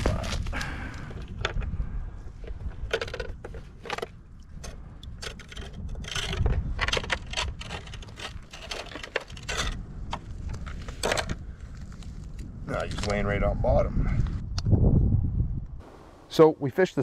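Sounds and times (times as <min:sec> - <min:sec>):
low rumble: 0:00.0 - 0:16.2.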